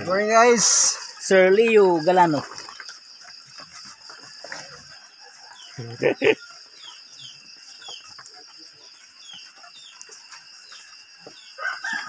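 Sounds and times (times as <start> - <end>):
high insect chorus: 0.0 - 12.0
rooster crowing: 11.4 - 12.0.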